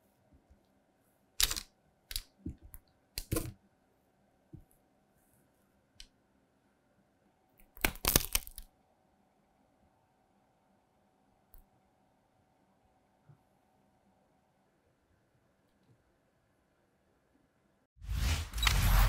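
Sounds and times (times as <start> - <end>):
puffed-rice bars cracking and crunching: 7.7 - 8.7.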